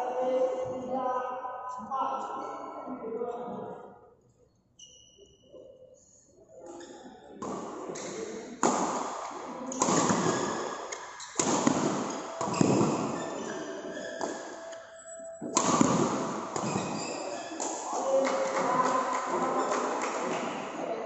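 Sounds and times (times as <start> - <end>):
racquets hitting shuttlecock: 7.4 - 14.6, 15.4 - 20.6.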